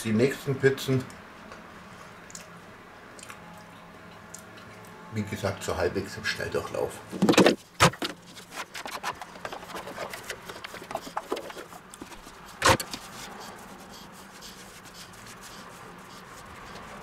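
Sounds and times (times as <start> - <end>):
dough rubbing on wooden board: 8.0 - 17.0.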